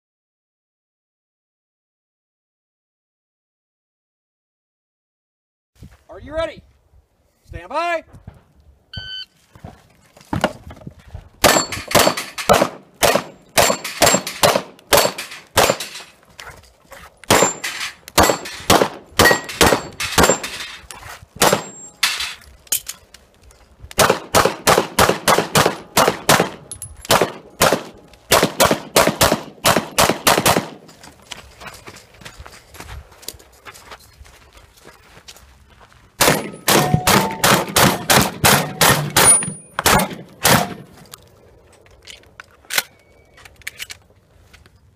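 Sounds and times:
shot timer beep: 9.0s - 9.3s
steel targets ringing: 11.4s - 12.5s, 13.3s - 16.1s, 17.3s - 20.8s, 21.4s - 22.4s, 36.4s - 37.5s, 38.5s - 40.8s
pistol shots: 11.4s - 16.0s, 17.3s - 20.5s, 21.4s - 21.8s, 24.0s - 30.8s, 36.2s - 40.9s.

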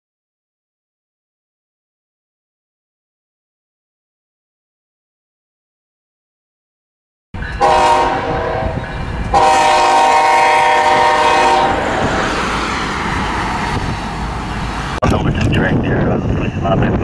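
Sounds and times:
locomotive engine rumbling: 7.4s - 17.0s
locomotive air horn: 7.6s - 12.2s.

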